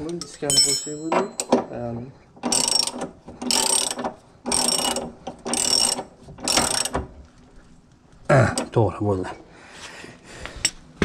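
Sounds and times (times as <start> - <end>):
ratcheting wrench clicking: 2.4 - 7.0.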